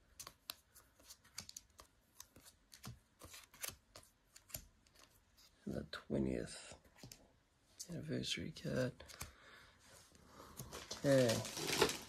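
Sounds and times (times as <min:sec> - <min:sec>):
trading cards clicking and rustling: 0:00.0 - 0:05.2.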